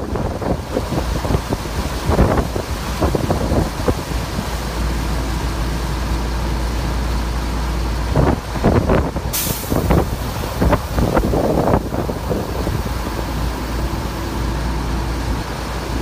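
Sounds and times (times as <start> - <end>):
wind buffeting microphone: 0.0 - 5.2, 7.8 - 16.0
vehicle rumble: 0.0 - 16.0
steady high hiss: 9.3 - 16.0.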